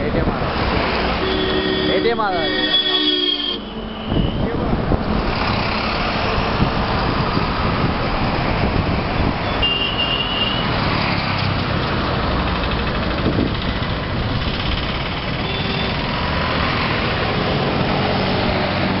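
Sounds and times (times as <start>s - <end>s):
city traffic road noise: 0.0s - 19.0s
high-pitched tone: 1.2s - 4.6s.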